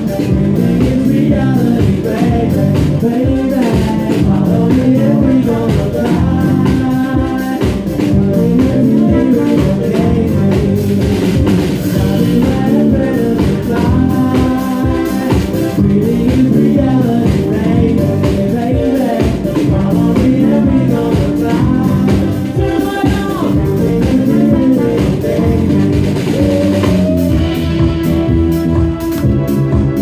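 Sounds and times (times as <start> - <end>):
man singing lead vocal: 0.0 - 27.8
drum kit: 0.0 - 30.0
electric bass: 0.0 - 30.0
trumpet: 8.2 - 15.4, 20.5 - 30.0.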